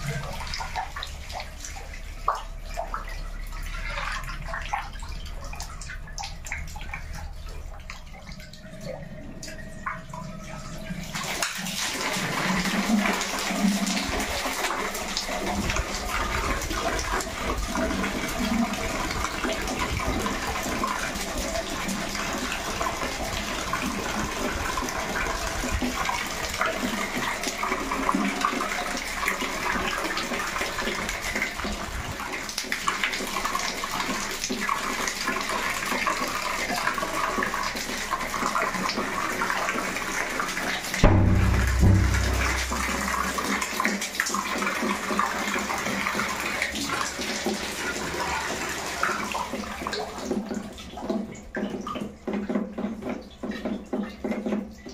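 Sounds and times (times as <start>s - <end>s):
water splashing onto tiled floor: 11.1s - 54.9s.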